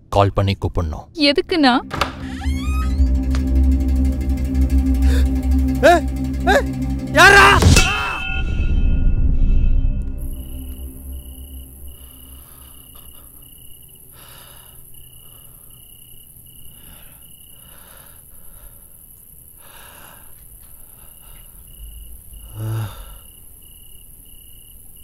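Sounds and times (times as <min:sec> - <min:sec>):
cricket chirping: 0:08.0 - 0:25.0
man breathing heavily: 0:14.1 - 0:15.8, 0:16.6 - 0:23.4
man groaning: 0:22.4 - 0:23.2.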